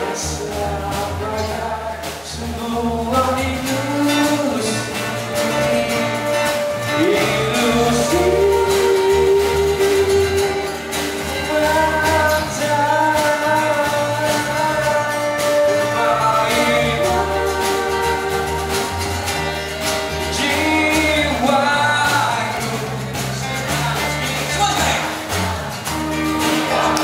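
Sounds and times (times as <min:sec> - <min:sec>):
man singing long notes: 0:00.0 - 0:19.2
steady drum beat: 0:00.0 - 0:27.0
strummed acoustic guitars: 0:00.0 - 0:27.0.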